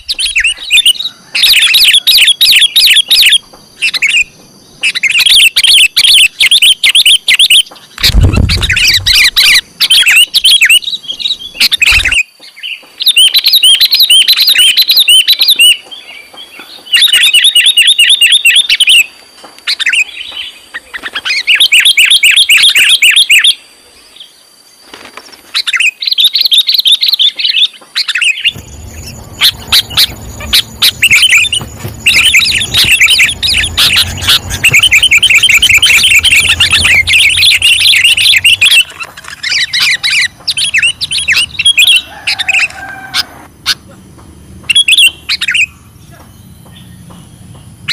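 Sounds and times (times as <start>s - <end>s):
bird chirping in rapid bursts: 0.0s - 12.3s, 25.7s - 42.1s
low rumble: 28.6s - 41.7s.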